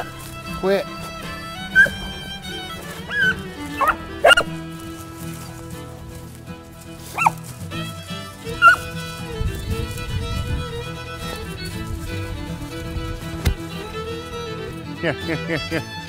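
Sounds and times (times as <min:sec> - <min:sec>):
dogs yelping: 0:00.0 - 0:04.9, 0:07.0 - 0:07.4, 0:08.5 - 0:09.0
background music: 0:00.0 - 0:16.0.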